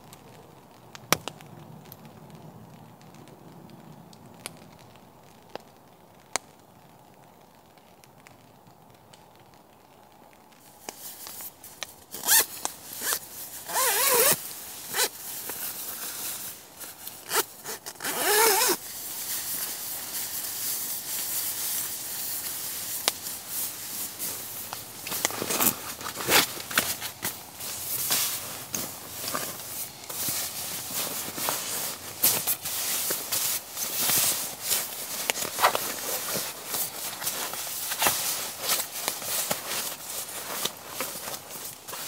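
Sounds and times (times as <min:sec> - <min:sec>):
zipper pulls: 0:12.2 - 0:15.1, 0:17.3 - 0:18.8, 0:25.2 - 0:27.3
fabric handling: 0:12.2 - 0:42.0.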